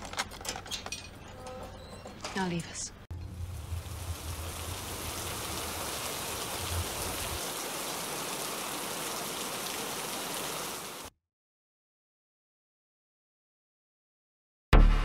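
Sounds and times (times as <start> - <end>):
low hum: 3.1 - 7.4
steady rain falling: 3.1 - 11.1.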